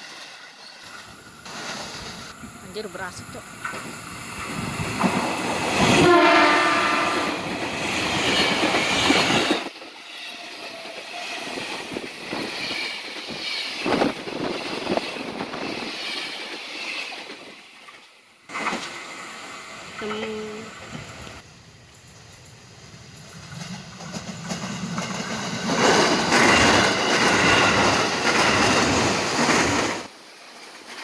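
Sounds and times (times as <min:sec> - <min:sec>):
train wheels on rails: 0:00.0 - 0:31.0
rail joint clacks: 0:00.1 - 0:06.4, 0:07.0 - 0:19.0, 0:22.0 - 0:31.0
train horn: 0:05.9 - 0:07.5.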